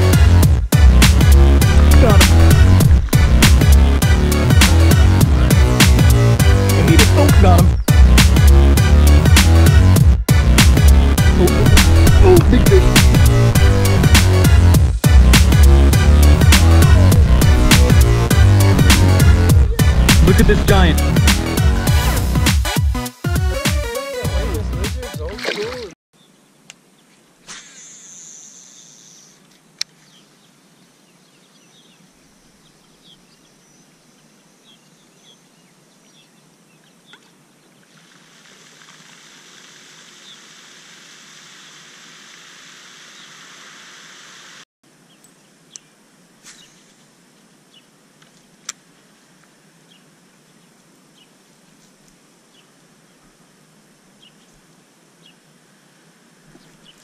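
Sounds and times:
steady background hiss: 0:26.2 - 0:57.0
loud steady hiss: 0:27.4 - 0:29.4, 0:38.0 - 0:50.3
bird chirps: 0:27.7 - 0:29.4.

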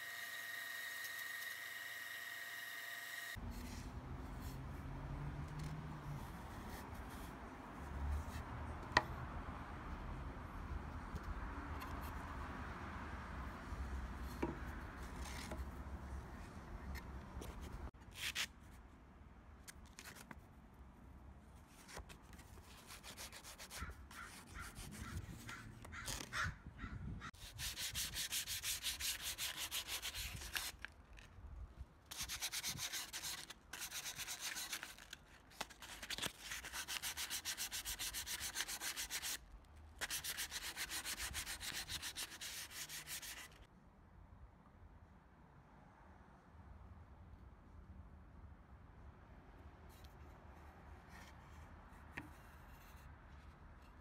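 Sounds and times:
sandpaper rubbing on wood: 0:27.4 - 0:30.8, 0:32.1 - 0:35.0, 0:36.4 - 0:39.4, 0:40.0 - 0:43.6.

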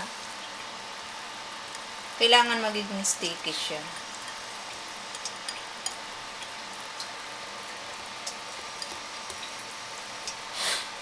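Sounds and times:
whisk wires ticking against bowl: 0:03.3 - 0:10.5.

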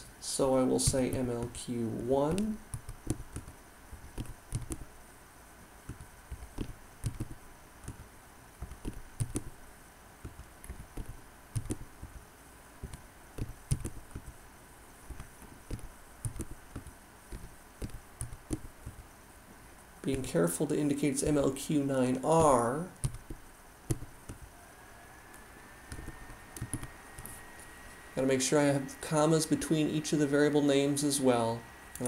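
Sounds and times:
computer keyboard typing: 0:00.8 - 0:01.6, 0:02.3 - 0:04.9, 0:05.9 - 0:09.5, 0:10.3 - 0:12.2, 0:12.8 - 0:14.4, 0:15.1 - 0:19.0, 0:22.4 - 0:24.5, 0:25.9 - 0:27.4.

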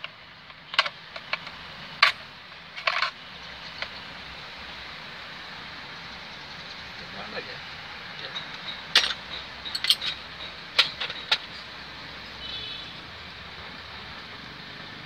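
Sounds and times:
hand tools clicking and tapping: 0:00.5 - 0:02.2, 0:08.2 - 0:11.8.

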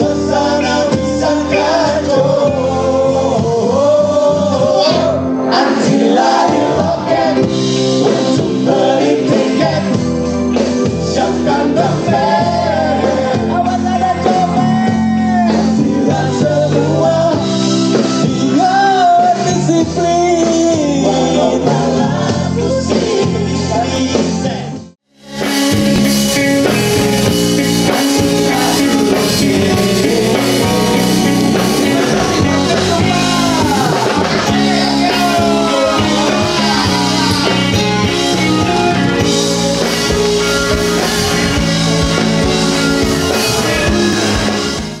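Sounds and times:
person singing: 0:00.0 - 0:10.2, 0:25.4 - 0:45.0
band playing: 0:00.0 - 0:45.0.

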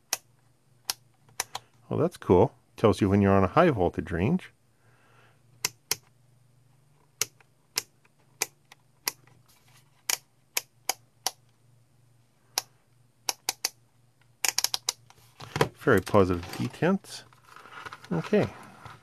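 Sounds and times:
rotary switch clicking: 0:13.3 - 0:13.8, 0:14.4 - 0:15.0.

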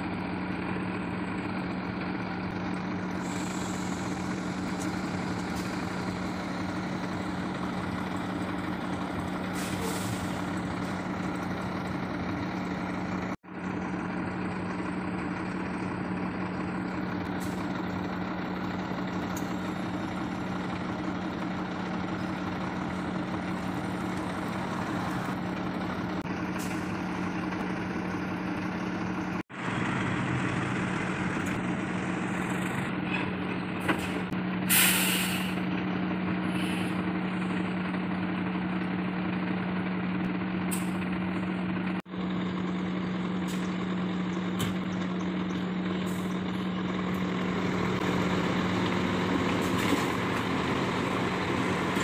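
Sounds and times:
diesel truck engine idling: 0:00.0 - 0:52.0
compressed air hiss: 0:34.7 - 0:35.6.

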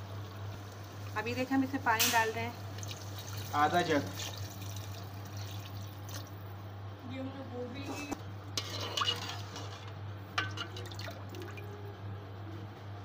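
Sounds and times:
metal ladle scraping a pot: 0:07.8 - 0:10.9.

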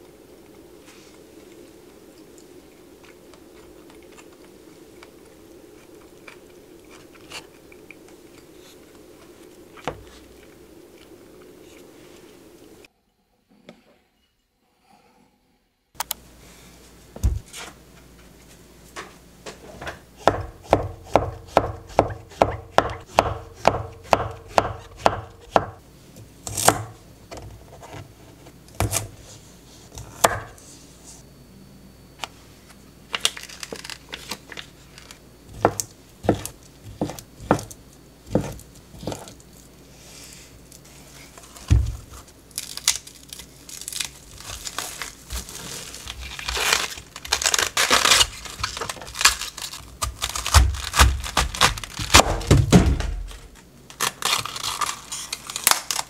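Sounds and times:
knife chopping on wooden board: 0:20.2 - 0:25.8, 0:30.1 - 0:30.5, 0:35.6 - 0:37.7, 0:38.3 - 0:39.3
cabbage leaves tearing: 0:33.2 - 0:37.7, 0:40.9 - 0:52.6, 0:53.2 - 0:56.0.

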